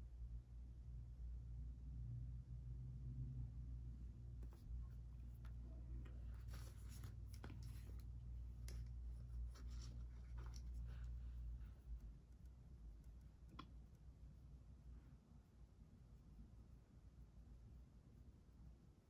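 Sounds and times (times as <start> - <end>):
scratchy rubbing: 4.4 - 12.5.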